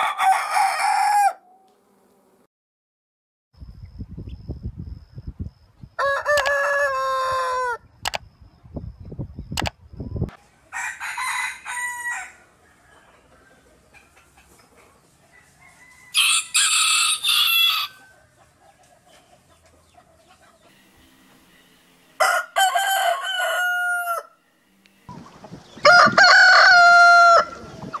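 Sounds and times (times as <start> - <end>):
roosters crowing: 0.0 - 1.6, 6.0 - 8.0, 10.3 - 28.0.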